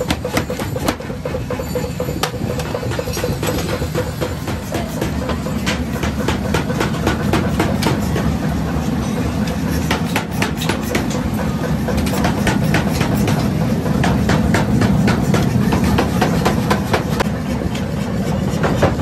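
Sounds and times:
metal clinks and scrapes: 0:00.0 - 0:06.1.

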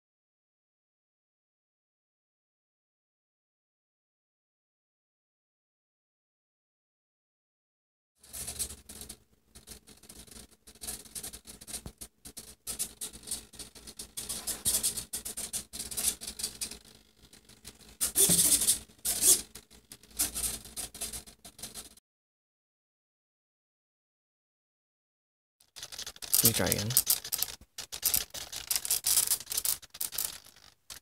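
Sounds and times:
foam plane rubbing and scraping: 0:18.0 - 0:21.2.

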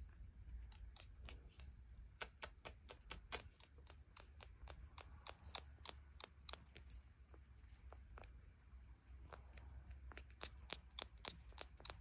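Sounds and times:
parrot beak clicking: 0:00.6 - 0:07.0, 0:09.3 - 0:12.0.

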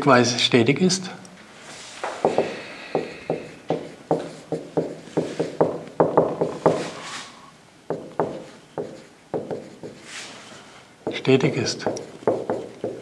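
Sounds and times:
marker tapping on whiteboard: 0:02.0 - 0:06.9, 0:07.9 - 0:10.0, 0:11.0 - 0:13.0.

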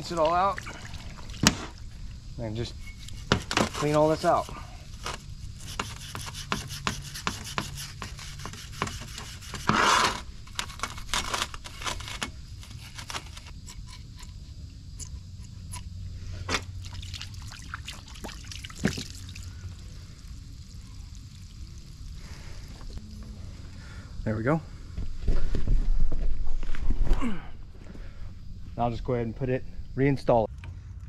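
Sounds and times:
hands scraping metal housing: 0:02.6 - 0:15.8.

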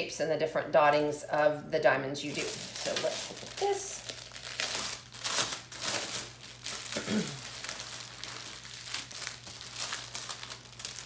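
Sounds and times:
plastic packaging crinkling: 0:02.2 - 0:11.0.

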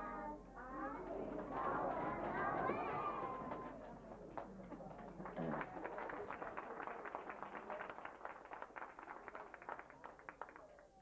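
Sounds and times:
hand clapping: 0:01.3 - 0:10.9.

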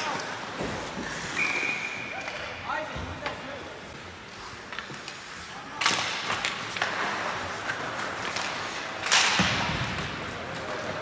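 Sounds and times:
hockey sticks and puck clacking: 0:04.6 - 0:11.0.

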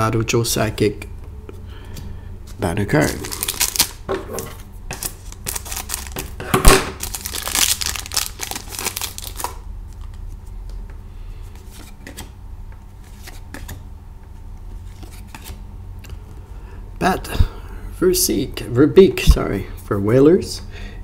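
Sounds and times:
cards being handled: 0:02.5 - 0:12.4, 0:13.0 - 0:13.8, 0:14.7 - 0:15.6
scissors cutting wrapper: 0:03.0 - 0:04.0, 0:07.0 - 0:09.6
wrapper crinkling: 0:03.0 - 0:04.0, 0:05.0 - 0:10.1.

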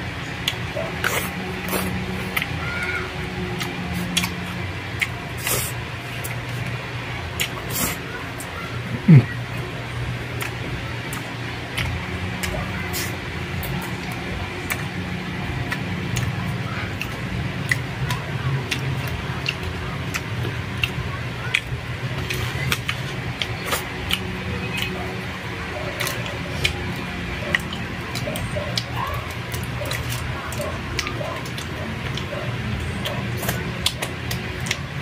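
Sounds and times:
steady low hum: 0:00.0 - 0:35.0
person chewing food: 0:00.4 - 0:35.0
wet mouth clicks and smacks: 0:03.4 - 0:06.8, 0:10.3 - 0:25.0, 0:25.9 - 0:34.9.

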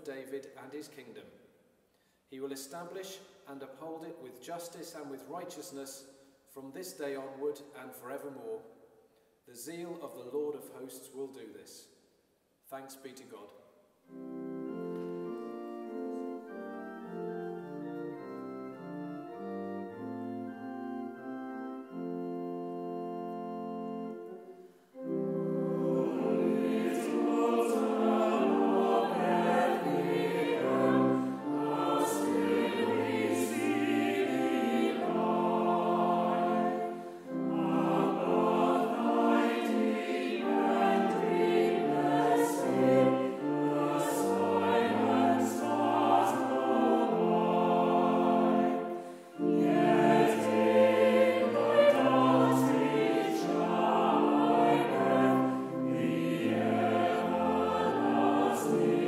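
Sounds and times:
choir singing a carol: 0:14.0 - 0:59.0.

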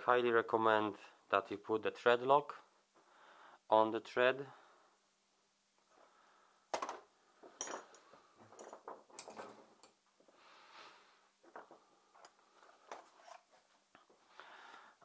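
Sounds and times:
soft rummaging in toolbox: 0:06.8 - 0:10.4, 0:11.4 - 0:14.2
small tools clinking: 0:07.5 - 0:10.0.

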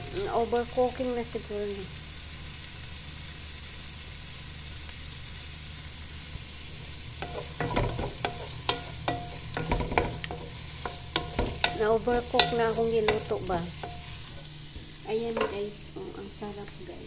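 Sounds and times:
onions sizzling in a pan: 0:00.0 - 0:17.0
wooden spoon scraping a pan: 0:06.8 - 0:15.7.

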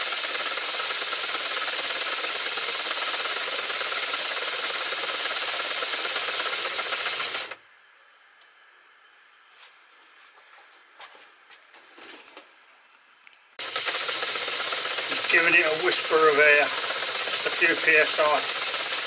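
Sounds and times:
compressed air exhausting: 0:00.0 - 0:07.6, 0:13.6 - 0:19.0.

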